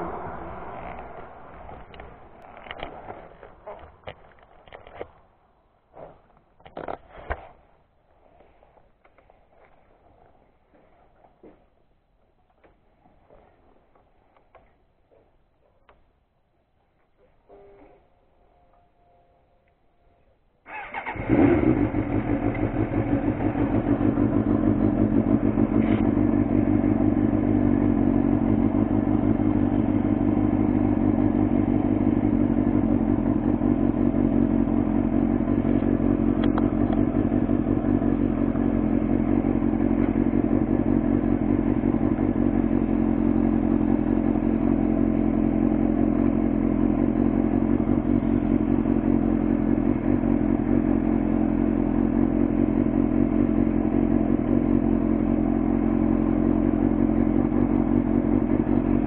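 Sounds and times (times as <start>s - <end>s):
motorcycle engine idling: 20.7s - 59.0s.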